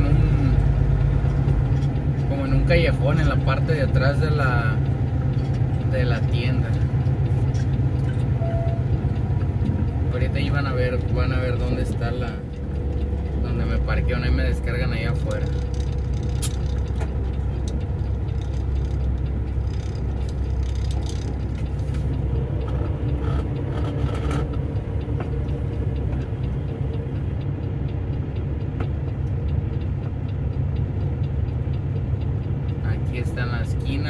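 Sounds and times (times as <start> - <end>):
diesel engine idling: 0.0 - 34.0.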